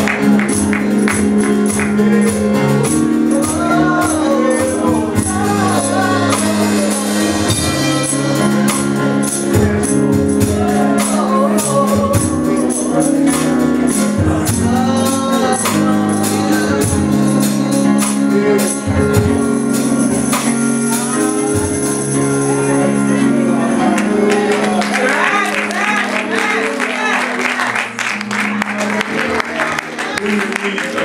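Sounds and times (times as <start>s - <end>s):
tambourine beat: 0.0s - 26.6s
voices singing gospel: 0.0s - 31.0s.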